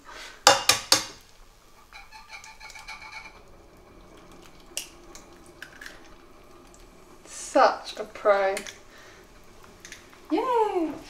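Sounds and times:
egg shell cracking: 0:04.2 - 0:06.8, 0:08.6 - 0:08.9.

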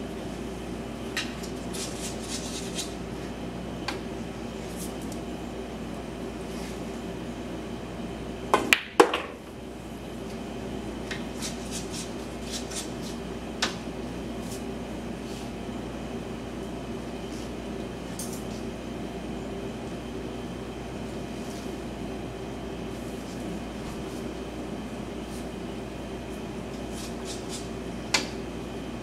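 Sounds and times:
room hum: 0:00.0 - 0:29.0
cue striking ball: 0:08.5 - 0:09.4
pool balls clicking: 0:08.5 - 0:09.4.

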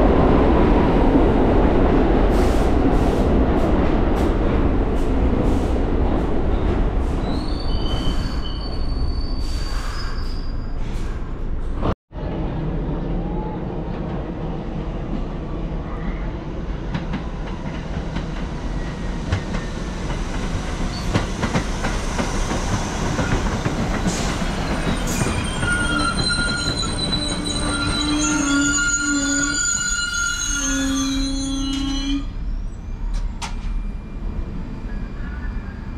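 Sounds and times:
train wheels rumbling and clicking: 0:16.7 - 0:28.9, 0:33.0 - 0:33.8
wheels squealing: 0:24.2 - 0:33.1.

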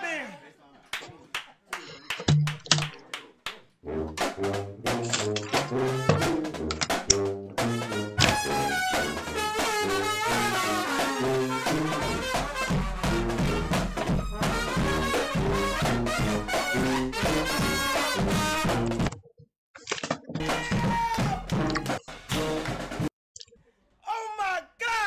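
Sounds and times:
marching band brass: 0:03.8 - 0:19.0, 0:20.4 - 0:23.1
snare drums: 0:04.1 - 0:19.1, 0:20.4 - 0:23.1.

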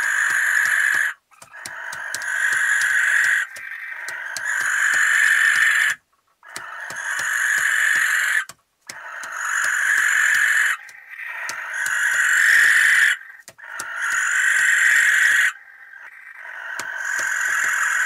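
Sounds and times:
barn owl screeching: 0:00.0 - 0:18.0.

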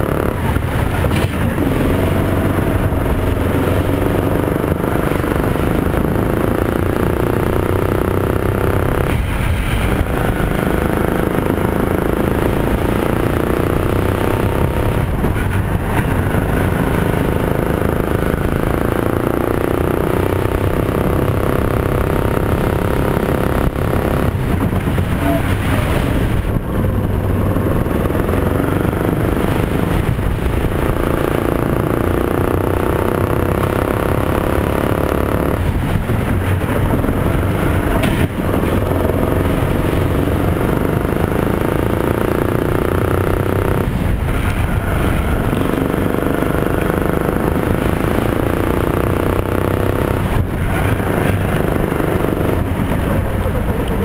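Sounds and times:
go-kart engine running hard: 0:00.0 - 0:54.0.

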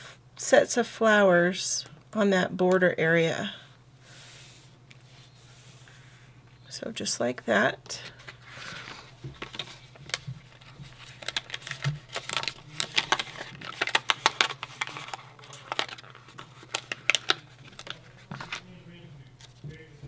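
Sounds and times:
paper crinkling and rustling: 0:08.0 - 0:18.7.

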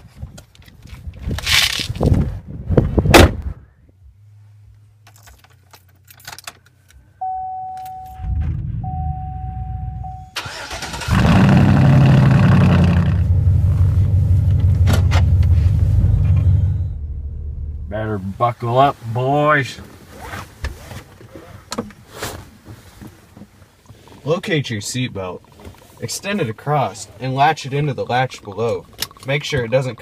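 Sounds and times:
electronic chime tone: 0:07.2 - 0:10.4
engine cranking and idling: 0:10.1 - 0:18.0.

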